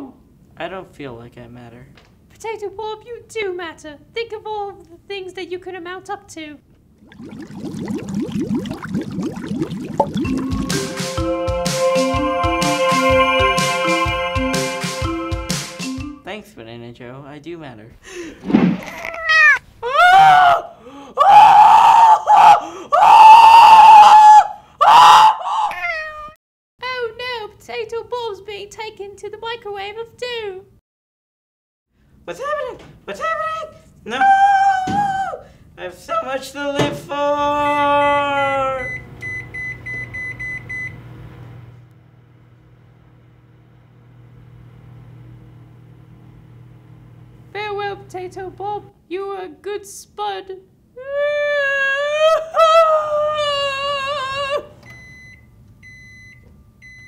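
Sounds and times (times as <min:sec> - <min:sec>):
person screaming: 0:18.8 - 0:26.4, 0:34.1 - 0:35.5, 0:37.2 - 0:38.9, 0:51.0 - 0:54.8
microwave running hum: 0:36.6 - 0:49.0, 0:52.5 - 0:57.0
microwave keypad beeping: 0:38.8 - 0:41.0, 0:54.8 - 0:57.0.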